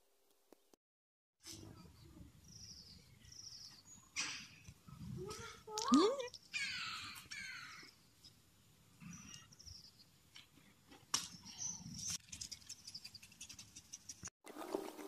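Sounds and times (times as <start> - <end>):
small birds chirping: 1.8 - 10.4, 11.2 - 14.3.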